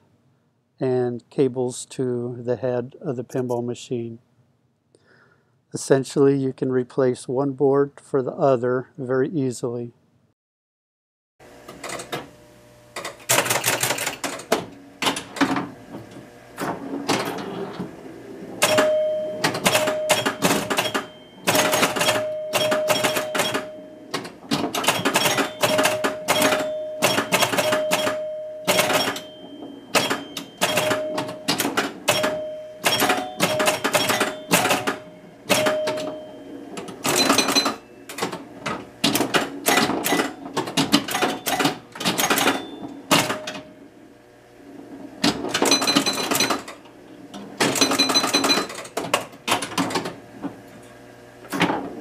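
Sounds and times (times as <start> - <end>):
pinball machine clicking and clacking: 13.0 - 17.9, 18.6 - 43.8, 45.2 - 50.2
short ringing tones: 18.6 - 24.1, 24.9 - 38.1, 45.7 - 46.7, 47.8 - 48.8.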